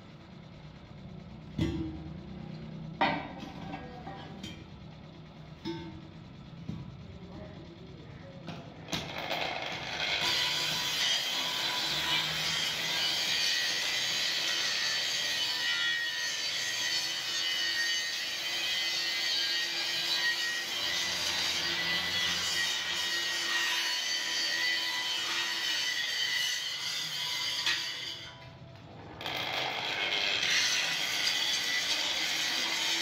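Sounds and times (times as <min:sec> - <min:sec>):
angle grinder grinding steel: 0:09.0 - 0:28.5, 0:29.2 - 0:33.0.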